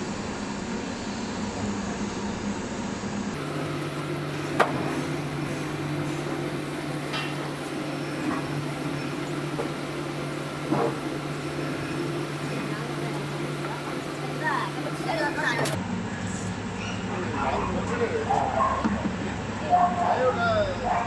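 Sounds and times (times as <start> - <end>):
juicer motor humming: 0.0 - 16.7.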